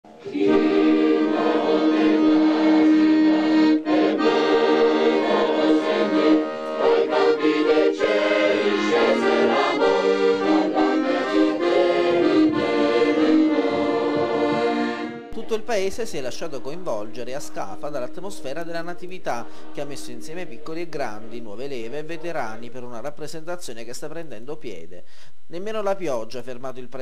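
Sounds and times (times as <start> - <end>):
accordion playing chords: 0.1 - 15.4.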